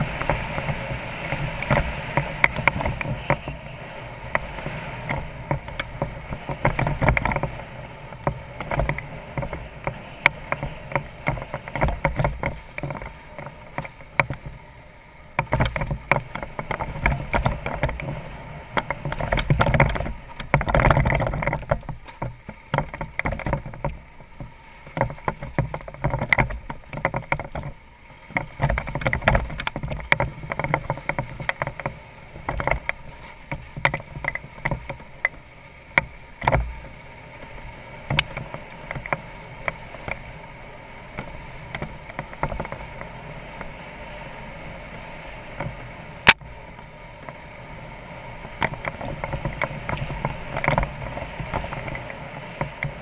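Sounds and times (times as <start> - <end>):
knocks and rattles from bumps: 5.1 - 14.6, 15.4 - 36.9.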